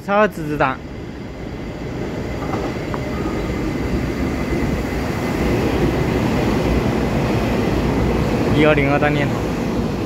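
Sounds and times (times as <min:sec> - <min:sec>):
train rolling: 0:00.0 - 0:10.0.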